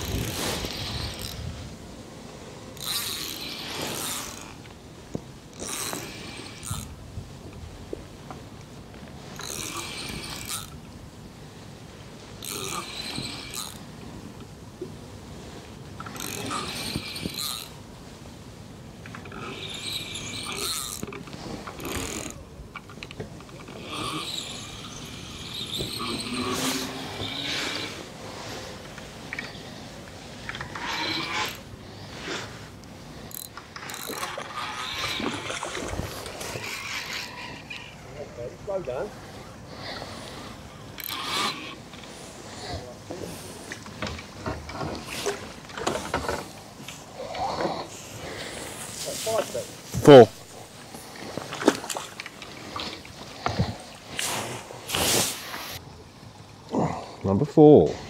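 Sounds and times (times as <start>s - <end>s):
fishing reel whirring: 0.0s - 1.5s, 2.8s - 4.6s, 5.5s - 7.0s, 9.4s - 10.8s, 12.4s - 13.9s, 16.1s - 17.8s, 19.2s - 22.4s, 23.7s - 28.0s, 30.6s - 31.7s, 33.3s - 38.0s, 40.7s - 41.9s
reel clicks and knocks: 33.3s - 37.3s
water splashing: 33.8s - 38.2s, 48.2s - 55.8s.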